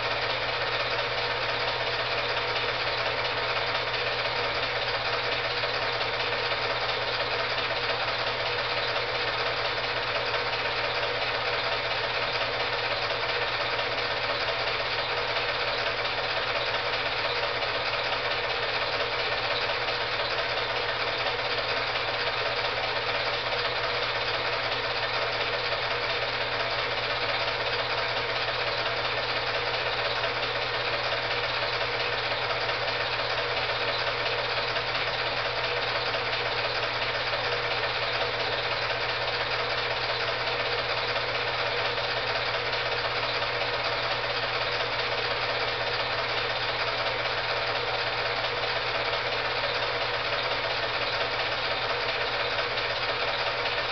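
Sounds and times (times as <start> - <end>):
film projector whirring clatter: 0.0 - 53.9.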